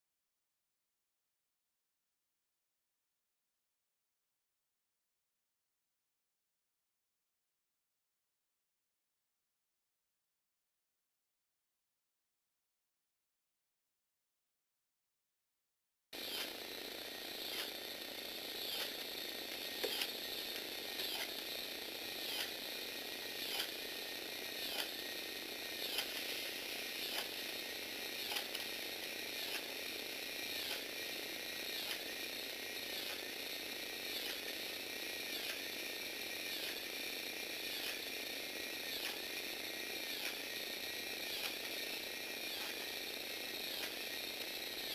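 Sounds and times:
small electric motor whining: 16.2s - 44.9s.

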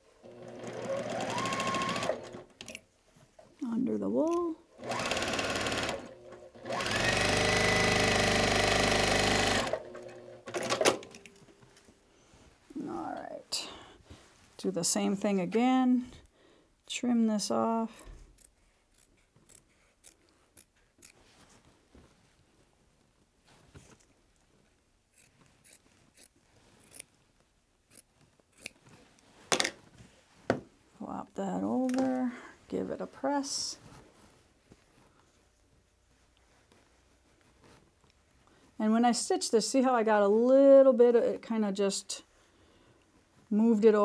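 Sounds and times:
sewing machine stitching: 0.2s - 2.7s, 4.8s - 11.2s
scissors snipping fabric: 18.3s - 21.2s, 25.1s - 27.1s, 27.9s - 28.8s.

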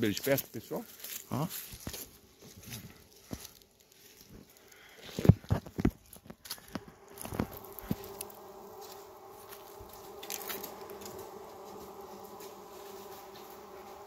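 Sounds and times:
bees buzzing in hive: 5.7s - 14.0s.

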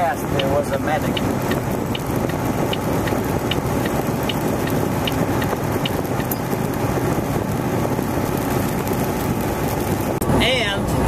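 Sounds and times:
light regular ticking: 0.0s - 6.8s
truck engine and road noise: 0.0s - 11.0s.

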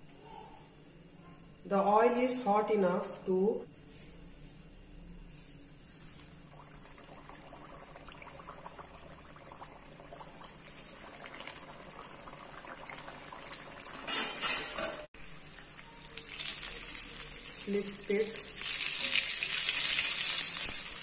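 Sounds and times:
deep-frying in hot oil: 6.5s - 21.0s.

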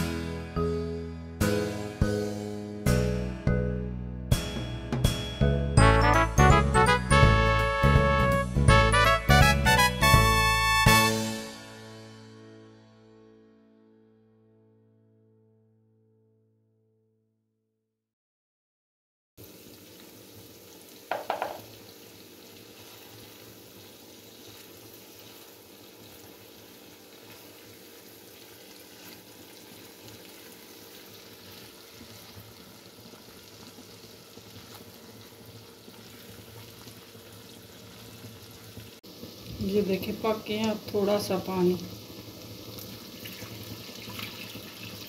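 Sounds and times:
food sizzling in a pan: 19.4s - 45.0s.

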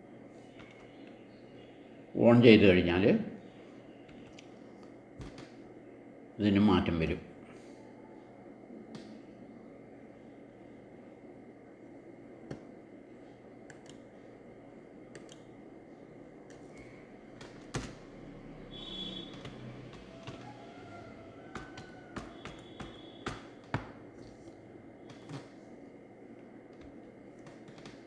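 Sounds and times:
computer keys and mouse clicking: 0.6s - 1.2s, 4.0s - 5.6s, 13.6s - 14.1s, 15.1s - 15.5s, 16.4s - 18.0s, 19.2s - 20.5s, 21.5s - 25.6s, 26.7s - 28.0s.

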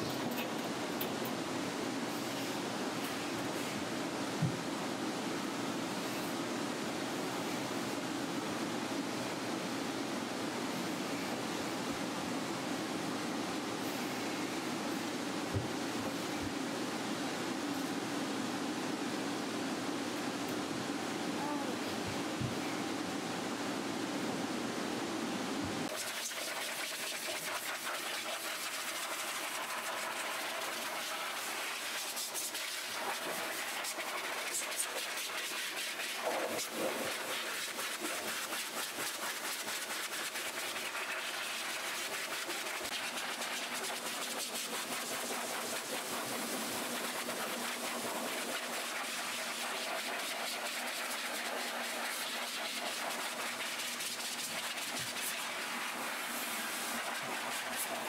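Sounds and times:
pet dryer blowing air: 25.5s - 58.0s.

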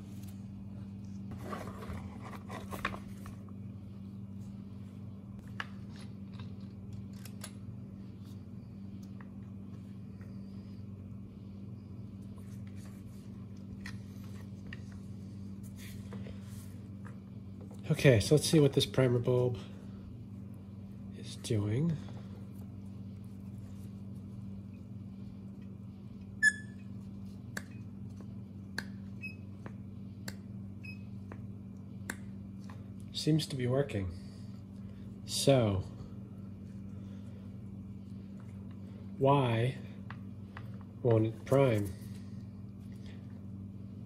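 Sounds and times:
steady low hum: 0.0s - 44.0s
primer bulb squeak: 26.4s - 26.9s.

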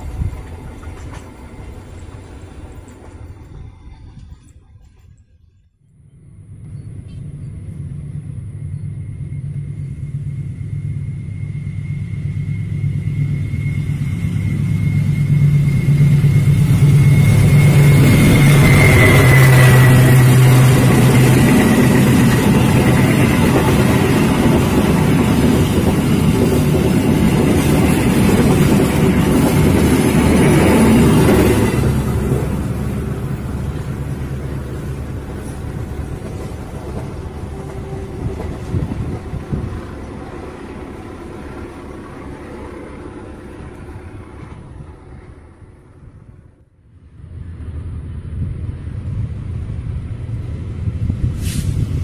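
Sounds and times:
diesel locomotive engine: 0.0s - 52.0s
train coaches rumbling on rails: 0.0s - 52.0s
steady high whine: 5.9s - 37.6s.

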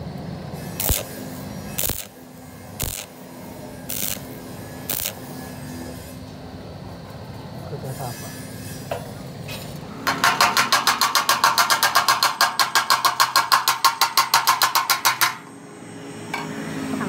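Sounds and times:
hand tool scraping steel: 3.9s - 4.3s.

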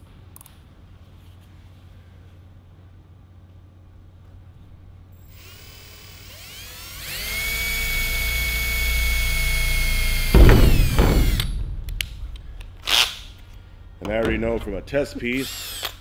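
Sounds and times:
cordless drill whining: 5.2s - 11.6s, 15.3s - 16.0s
drill cutting through metal: 5.2s - 11.6s, 15.3s - 16.0s.

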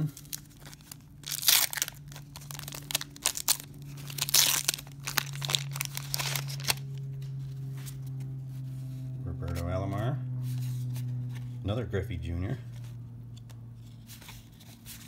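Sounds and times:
wax paper wrapper tearing: 0.0s - 8.2s.

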